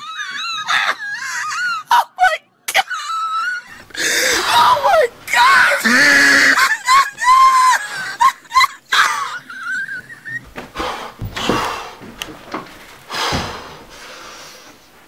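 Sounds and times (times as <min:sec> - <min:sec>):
person wailing: 0:01.8 - 0:08.4.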